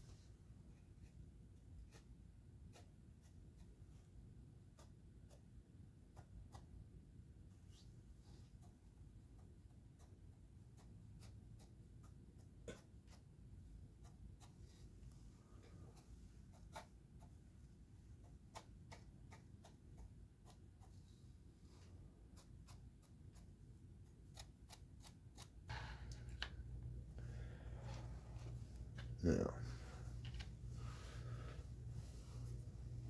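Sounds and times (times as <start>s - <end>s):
low room hum: 0.0s - 33.0s
model handling noise: 27.8s - 30.8s.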